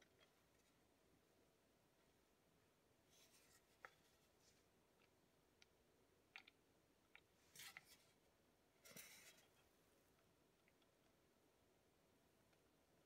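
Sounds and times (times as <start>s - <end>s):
soft brushing of metal hands: 3.1s - 4.7s, 8.8s - 9.7s.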